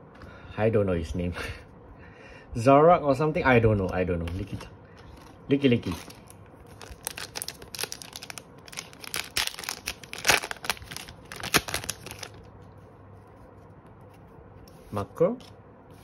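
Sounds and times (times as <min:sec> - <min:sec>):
foil wrapper crinkling and tearing: 0:05.1 - 0:12.5.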